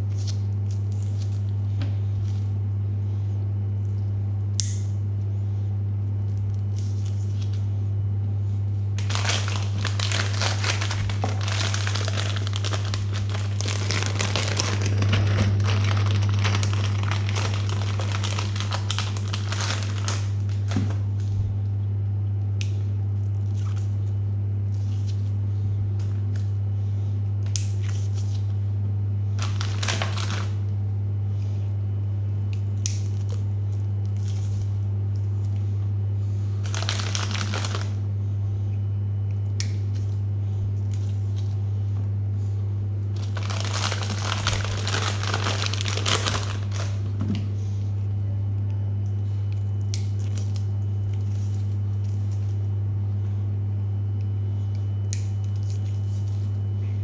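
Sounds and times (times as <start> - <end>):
steady low hum: 0.0 - 57.0
packaging crinkling: 9.0 - 21.4, 29.4 - 30.6, 36.6 - 38.0, 43.1 - 47.2.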